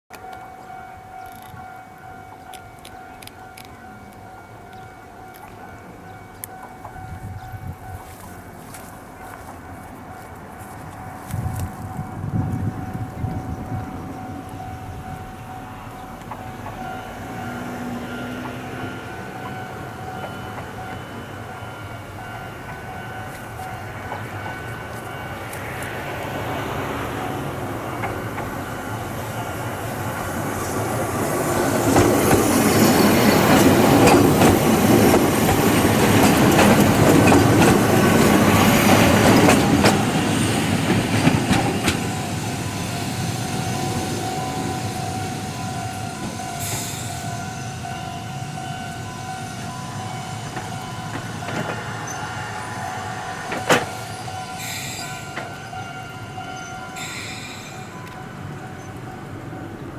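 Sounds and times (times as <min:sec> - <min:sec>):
train running on track: 0:00.1 - 0:59.9
wheels clattering over rail joints: 0:27.7 - 0:42.3.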